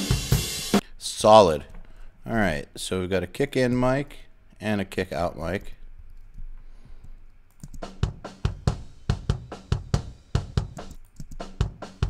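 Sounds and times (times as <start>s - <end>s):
cymbals: 0.0s - 0.8s
snare drum: 7.8s - 12.0s
punchy kick drum hits: 8.0s - 10.8s.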